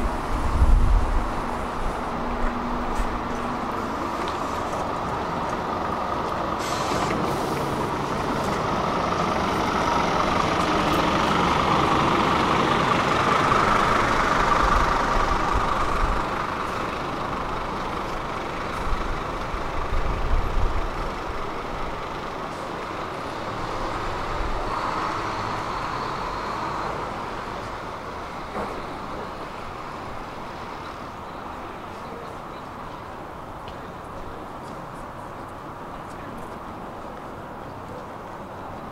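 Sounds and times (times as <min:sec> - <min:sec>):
low rumbles: 0:00.0 - 0:06.4
heavy vehicle passing: 0:00.0 - 0:31.2.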